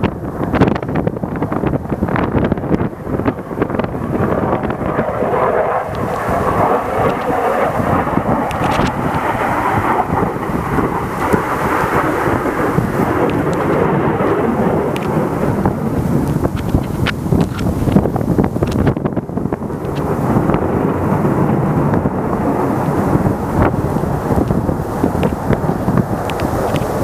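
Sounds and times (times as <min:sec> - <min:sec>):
fighter jet engine rumbling: 0:00.0 - 0:27.0.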